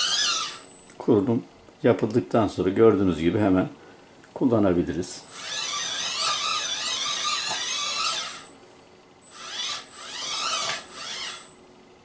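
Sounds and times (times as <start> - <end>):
electric motors whining: 0.0 - 1.0, 5.2 - 8.6, 9.2 - 11.6.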